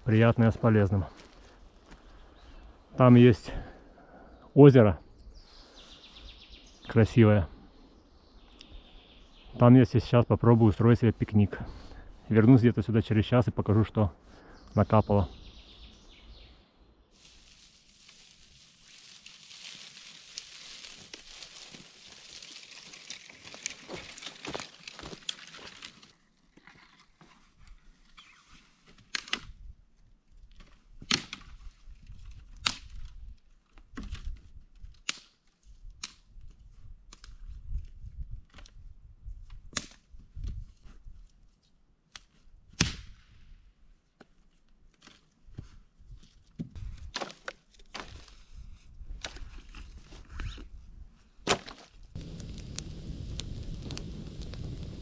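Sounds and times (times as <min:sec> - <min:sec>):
branch rustling through dry grass: 0:17.1 - 0:29.2, 0:51.5 - 0:55.0
dry branches snapping: 0:17.2 - 0:26.2, 0:29.0 - 0:29.5, 0:30.5 - 0:31.6, 0:32.3 - 0:33.2, 0:33.8 - 0:36.3, 0:39.7 - 0:40.1, 0:47.1 - 0:48.3, 0:51.4 - 0:55.0.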